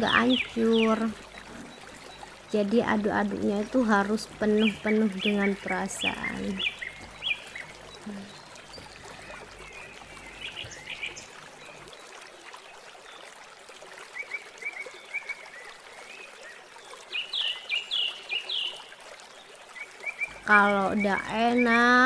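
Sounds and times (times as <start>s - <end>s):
soup bubbling in metal pot: 0.4s - 2.6s, 5.6s - 20.5s.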